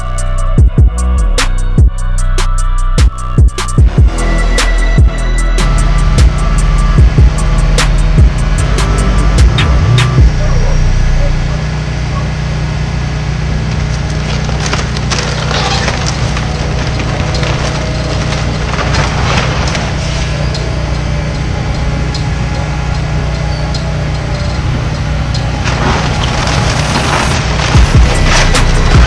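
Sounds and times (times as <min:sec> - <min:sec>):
excavator engine running: 0:00.0 - 0:29.0
timber cracking and splintering: 0:13.7 - 0:20.3, 0:25.6 - 0:29.0.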